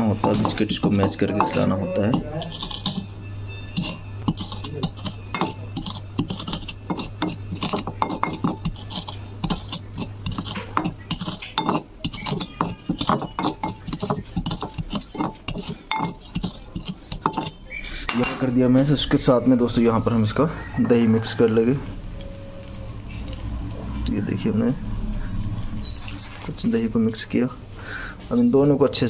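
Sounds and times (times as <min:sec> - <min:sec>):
metal rod mashing in bowl: 0:00.0 - 0:18.7.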